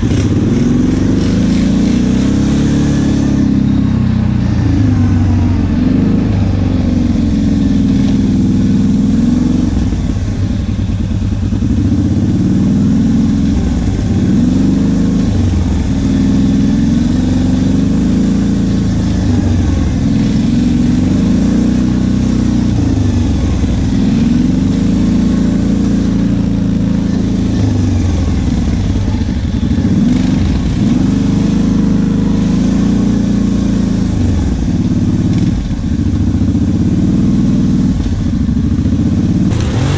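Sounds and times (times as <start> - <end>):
atv engine revving under load: 0.0 - 39.9
steady rushing noise: 38.1 - 39.9.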